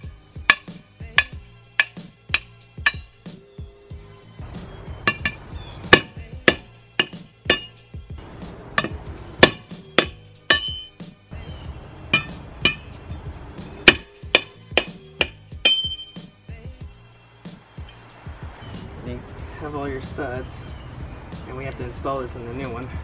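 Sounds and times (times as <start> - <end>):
hammer ringing on metal: 0.5 - 3.1, 5.1 - 7.8, 8.8 - 11.0, 12.1 - 13.0, 13.8 - 16.3.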